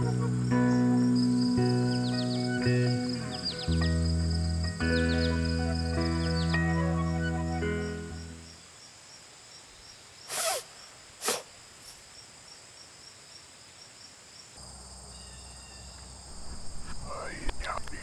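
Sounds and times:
music: 0.0s - 8.5s
faint insect chirping: 0.0s - 18.0s
man sneezing: 10.3s - 10.6s, 11.2s - 11.5s.

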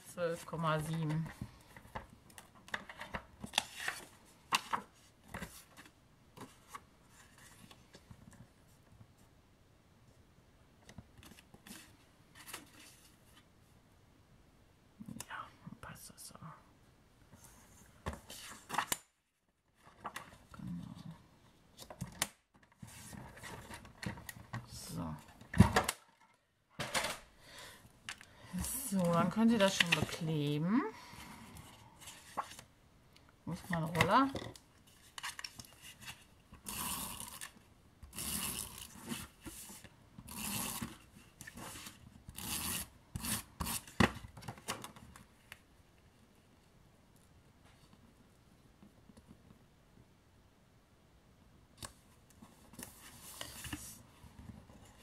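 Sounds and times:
paper rustling and sliding: 31.2s - 32.7s, 52.4s - 55.0s.

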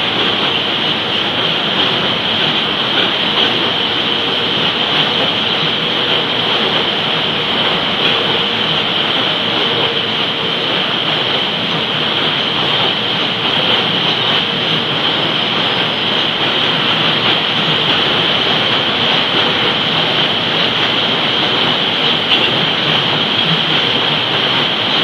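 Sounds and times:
train wheels rushing on track: 0.0s - 25.0s.

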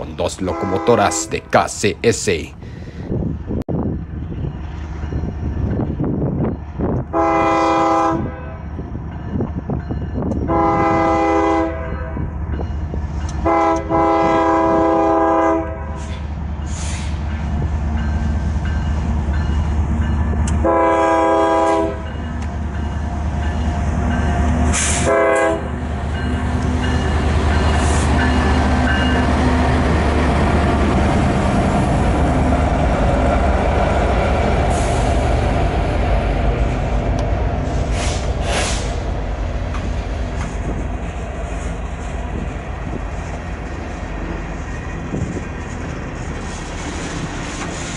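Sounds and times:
locomotive air horn blasts: 0.5s - 1.5s, 7.1s - 8.6s, 10.5s - 12.1s, 13.4s - 16.2s, 20.6s - 22.1s, 24.8s - 25.7s.

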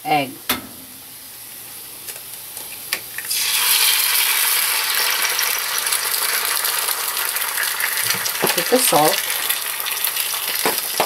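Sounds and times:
egg sizzling in hot oil: 3.0s - 11.0s.

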